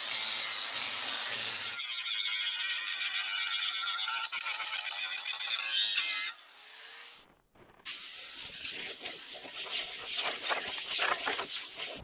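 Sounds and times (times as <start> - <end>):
angle grinder grinding metal: 0.0 - 6.4.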